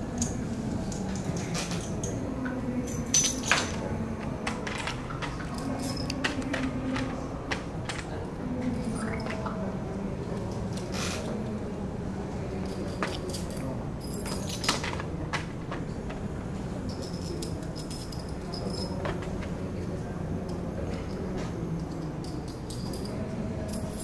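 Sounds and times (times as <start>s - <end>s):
metal bolts and nuts clinking: 2.8s - 3.9s, 4.5s - 7.1s, 12.6s - 15.1s, 16.8s - 19.3s, 21.8s - 24.0s.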